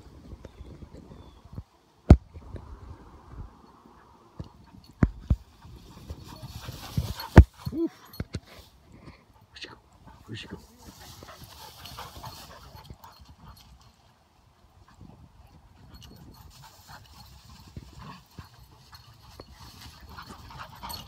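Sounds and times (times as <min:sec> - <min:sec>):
dry grass rustling: 0:05.0 - 0:07.7, 0:10.3 - 0:14.0
footsteps in dry grass: 0:05.1 - 0:07.6, 0:10.5 - 0:13.3.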